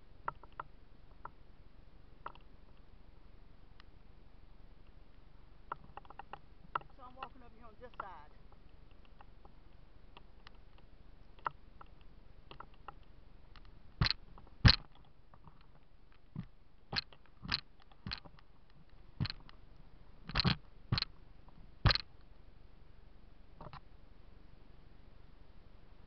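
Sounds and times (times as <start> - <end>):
sharp clicks: 5.7 - 9.5, 10.1 - 19.6, 20.3 - 21.2, 21.9 - 22.3.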